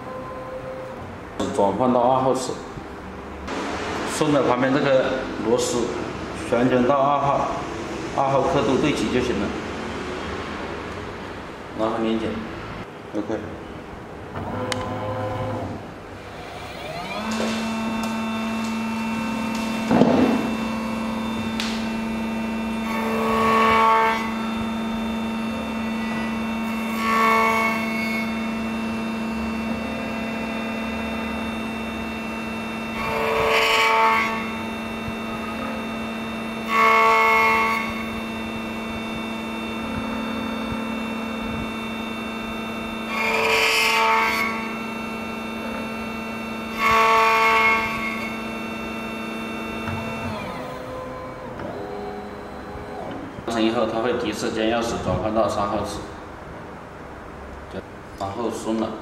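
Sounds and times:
key-cutting machine motor humming: 0:14.4 - 0:54.2.

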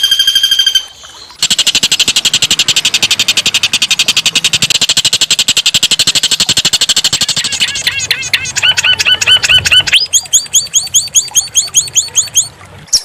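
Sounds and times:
fast-pulsed whistled note: 0:00.0 - 0:04.2
songbird buzzy rattle: 0:00.0 - 0:12.4.

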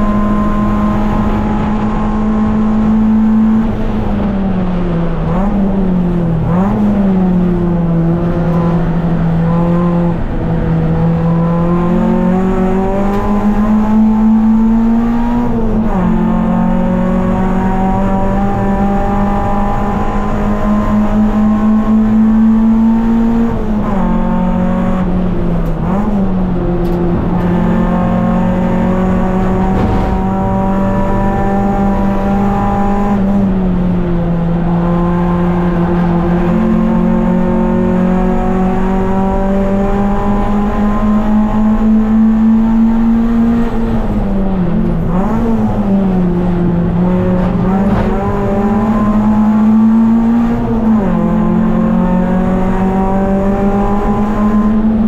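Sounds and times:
race car engine running hard: 0:00.0 - 0:55.0.

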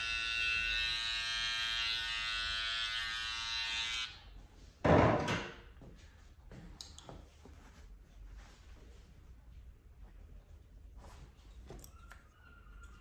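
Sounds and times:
electric clipper buzzing: 0:00.0 - 0:04.2.

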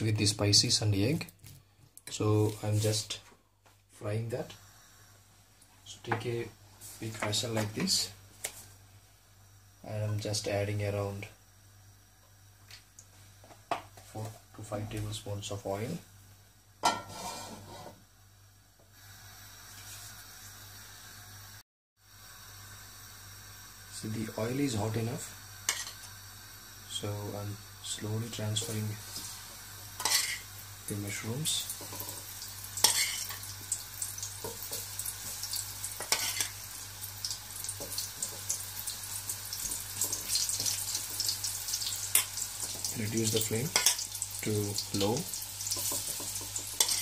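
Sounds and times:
oil hissing in a wok: 0:04.4 - 0:05.5, 0:16.9 - 0:47.0
spatula moving food in wok: 0:16.8 - 0:18.0, 0:28.6 - 0:30.5, 0:31.8 - 0:33.5, 0:34.4 - 0:36.6, 0:45.6 - 0:47.0.

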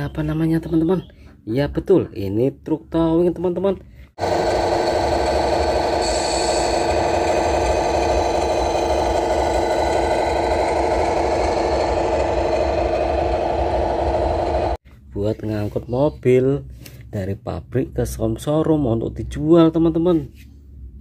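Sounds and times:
model truck engine rumble: 0:04.2 - 0:14.8.

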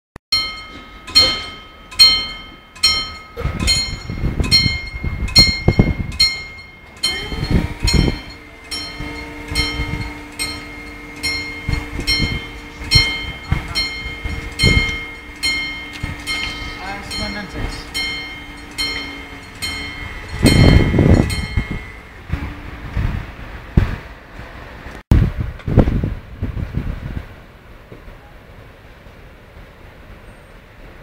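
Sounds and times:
level crossing warning bell: 0:00.3 - 0:22.9
low steady hum: 0:00.4 - 0:25.0.

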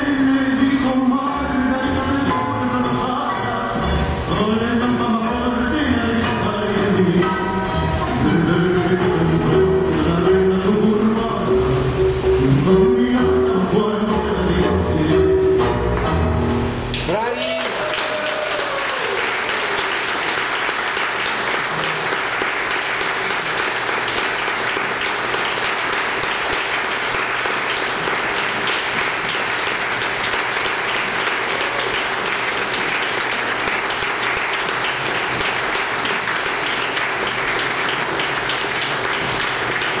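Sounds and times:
audience applauding: 0:17.0 - 0:40.0.

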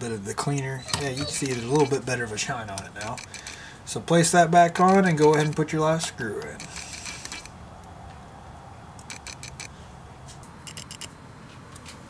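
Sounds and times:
screw and cap clicking into reel: 0:04.8 - 0:07.5.

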